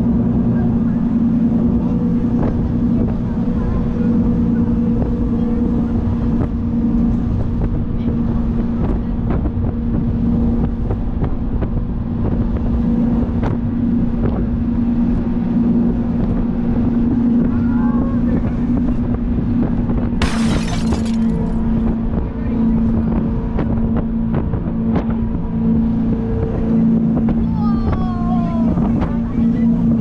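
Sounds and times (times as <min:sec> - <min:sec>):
wind on microphone: 0:00.0 - 0:20.2
boat engines running: 0:00.0 - 0:20.4, 0:21.0 - 0:30.0.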